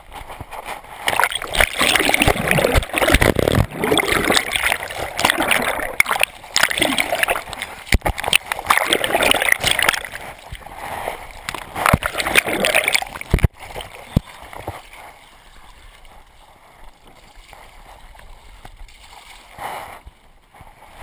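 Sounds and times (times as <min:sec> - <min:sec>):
moving water: 0:00.0 - 0:21.0
water splashing loudly: 0:01.1 - 0:10.4, 0:11.5 - 0:14.1.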